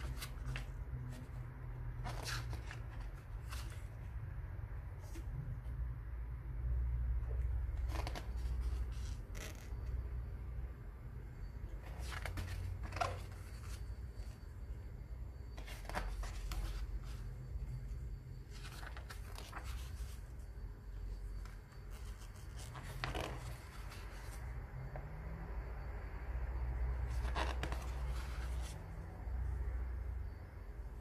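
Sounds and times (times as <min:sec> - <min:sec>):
pages being turned: 0:00.0 - 0:04.0, 0:07.8 - 0:09.8, 0:11.8 - 0:14.4, 0:15.6 - 0:17.3, 0:18.4 - 0:20.4, 0:21.4 - 0:24.5, 0:27.1 - 0:29.0
low steady hum: 0:00.0 - 0:31.0.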